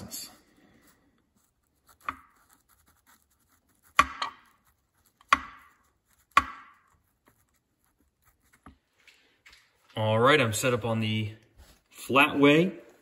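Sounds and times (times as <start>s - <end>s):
pen tapping on clipboard: 5.2s - 6.9s.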